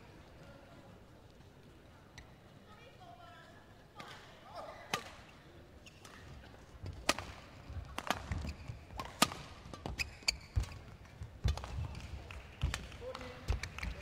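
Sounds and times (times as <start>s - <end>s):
rackets hitting shuttlecock: 6.9s - 13.9s.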